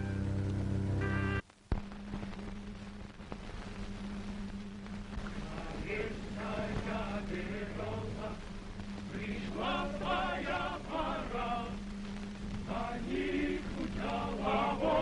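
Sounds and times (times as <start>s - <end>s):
steady low hum: 0.0s - 15.0s
choir singing: 5.4s - 8.5s, 9.1s - 11.8s, 12.7s - 15.0s.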